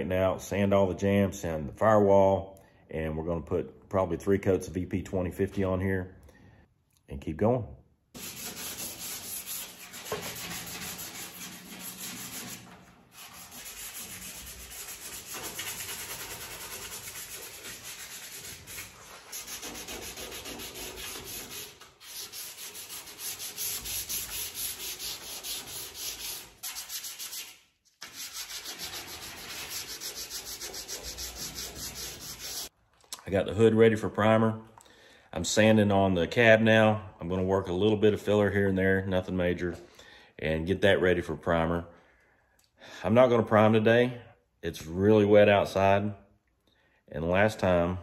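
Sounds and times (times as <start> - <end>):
sandpaper rasping on steel: 8.2 - 32.7.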